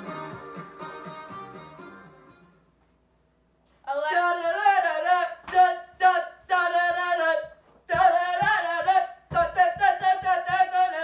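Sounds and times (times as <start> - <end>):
high female singing voice: 3.8 - 11.0.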